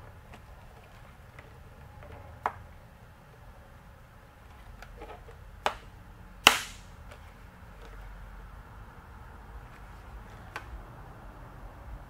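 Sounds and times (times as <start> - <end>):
sharp plastic clicks: 5.6 - 7.2.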